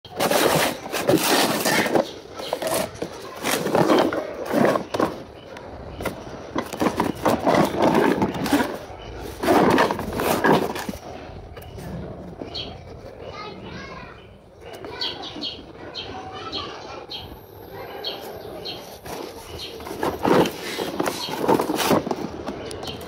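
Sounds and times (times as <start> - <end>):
cardboard box scraping and knocking: 0.1 - 13.1, 18.7 - 23.0.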